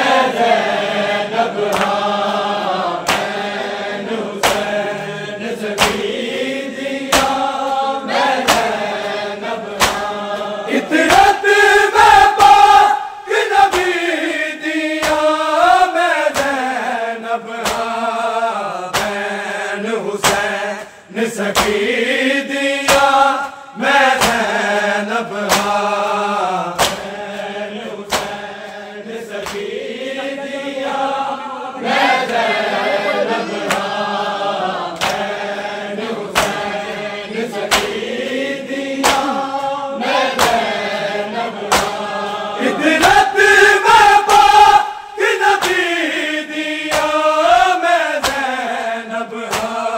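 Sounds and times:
men singing in chorus: 0:00.0 - 0:49.9
hands striking chests: 0:26.8 - 0:27.1, 0:39.0 - 0:39.4.

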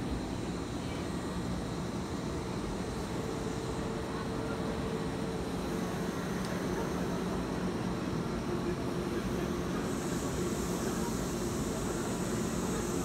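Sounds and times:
faint train hum: 0:00.0 - 0:13.0
people chattering: 0:03.8 - 0:13.0.

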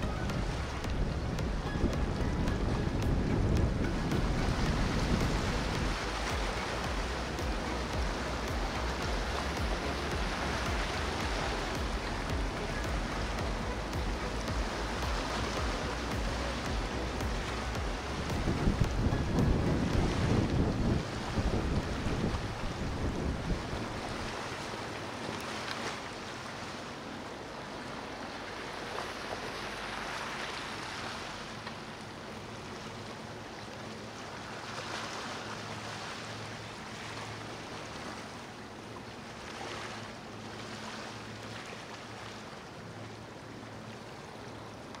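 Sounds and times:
gentle ocean surf washing ashore: 0:00.0 - 0:45.0.

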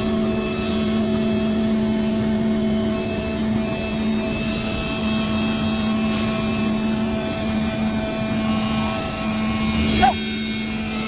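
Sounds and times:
knife cutter machine buzzing: 0:00.0 - 0:11.0.

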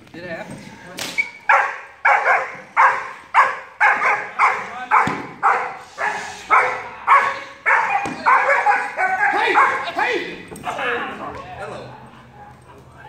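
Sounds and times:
dog barking sharply: 0:01.5 - 0:09.8.

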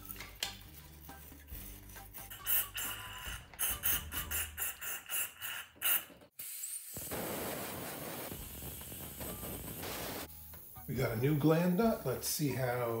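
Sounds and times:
aerosol spray hissing bursts: 0:04.6 - 0:10.9
compressed air blow gun hissing: 0:06.4 - 0:10.9.

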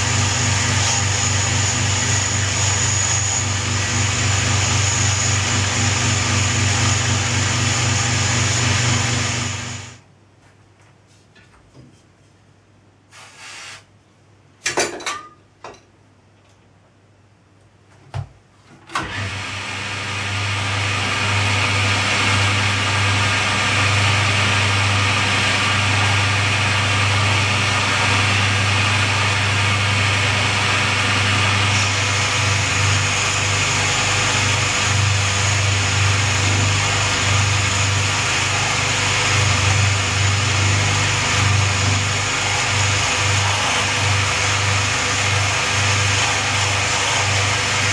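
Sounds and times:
high thin whine: 0:00.0 - 0:10.0, 0:22.0 - 0:47.9
machine-tool motor humming: 0:00.0 - 0:10.0, 0:20.1 - 0:47.9.

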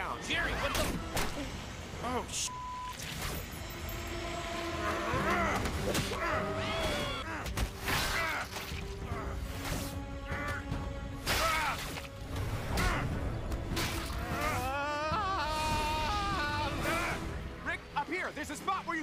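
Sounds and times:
dramatic music score: 0:00.0 - 0:19.0
cartoon characters grunting and yelling: 0:14.2 - 0:17.4.

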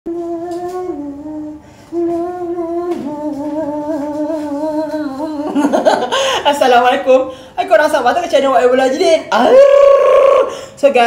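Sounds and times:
person humming a slow tune: 0:00.1 - 0:05.6.

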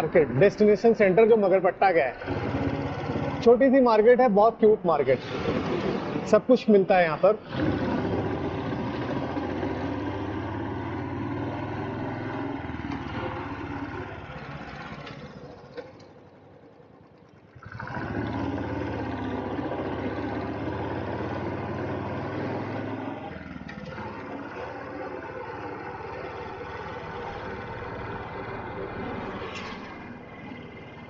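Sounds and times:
motorbike engine running: 0:02.2 - 0:03.5, 0:07.5 - 0:31.0
road and wind noise: 0:05.2 - 0:16.4, 0:17.4 - 0:31.0.

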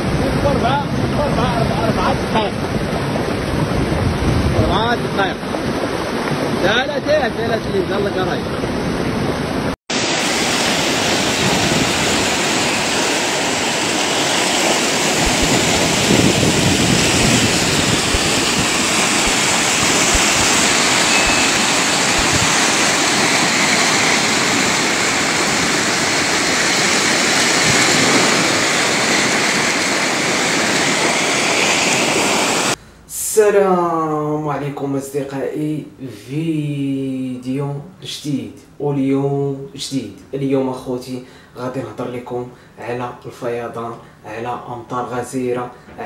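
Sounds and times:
floodwater rushing: 0:00.0 - 0:32.8.

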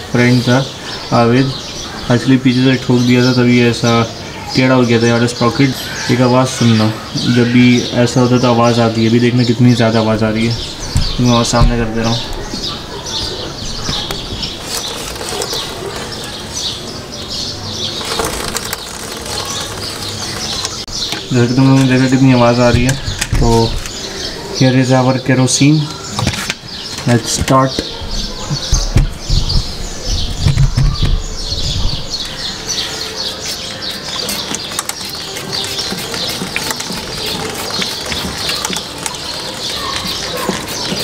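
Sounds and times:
small birds chirping: 0:00.0 - 0:41.0
drive chain squeaking and chattering: 0:17.8 - 0:20.8, 0:33.0 - 0:41.0
trigger sprayer hissing: 0:33.0 - 0:41.0.

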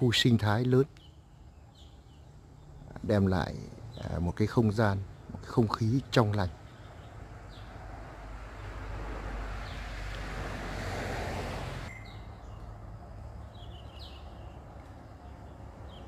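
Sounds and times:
bird chirps: 0:00.0 - 0:07.8, 0:11.9 - 0:16.0
road traffic rushing: 0:01.2 - 0:16.0.

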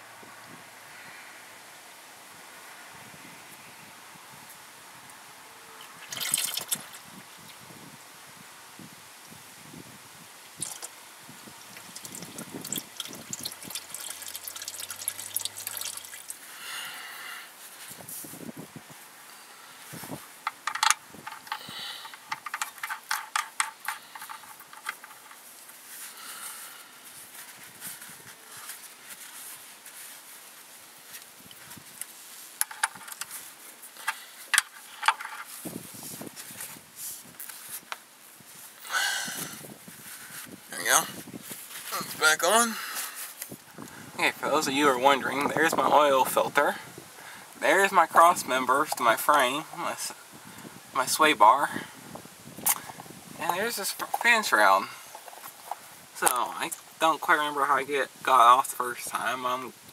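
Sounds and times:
dripping and splattering: 0:05.8 - 0:07.0, 0:10.6 - 0:10.9, 0:11.6 - 0:16.4
oil draining into a pan: 0:11.7 - 0:16.4
sharp metallic ticks: 0:11.9 - 0:16.4
cloth rustling and handling: 0:24.5 - 0:38.8, 0:39.8 - 0:42.2.

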